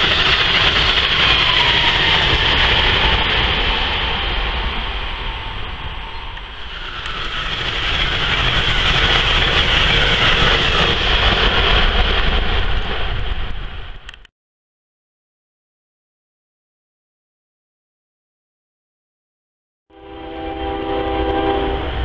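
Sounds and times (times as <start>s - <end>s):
train wheels rushing on rails: 0.0s - 14.3s, 20.0s - 22.0s.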